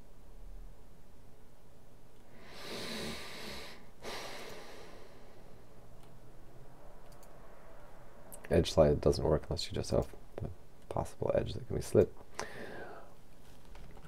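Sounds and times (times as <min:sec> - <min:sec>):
low steady hiss: 0:00.0 - 0:14.0
person breathing close: 0:02.3 - 0:05.8, 0:12.3 - 0:13.2.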